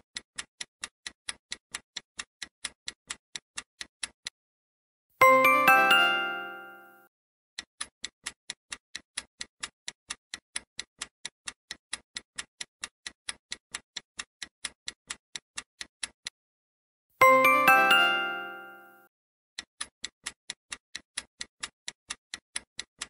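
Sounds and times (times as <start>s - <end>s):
clock ticking: 0.0s - 4.4s, 5.2s - 6.9s, 7.6s - 16.4s, 17.2s - 19.0s, 19.6s - 23.0s
bright multi-note chime: 5.2s - 7.1s, 17.2s - 19.1s.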